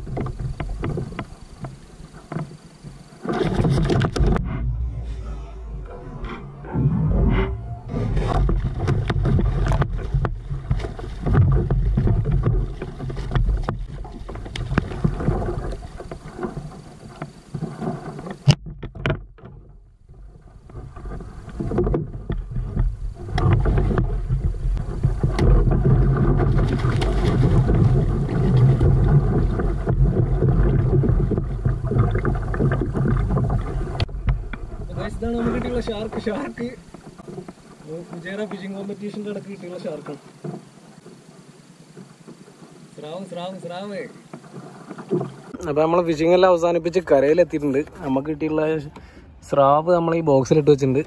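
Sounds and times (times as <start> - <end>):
water splashing: 0.0 - 18.7, 20.2 - 49.2
wind rumble on microphone: 0.0 - 37.6.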